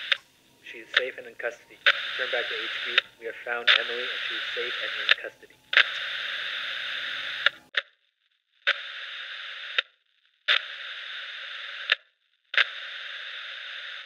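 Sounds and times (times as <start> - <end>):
radio squelch click: 0.0 - 7.6
radio static hiss: 0.0 - 7.8.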